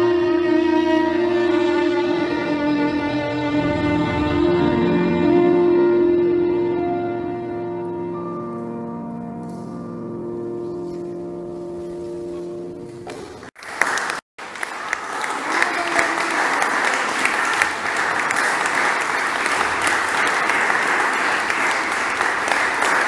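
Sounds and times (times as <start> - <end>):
violin and piano note: 0.0 - 9.5
audience clapping: 13.1 - 23.0.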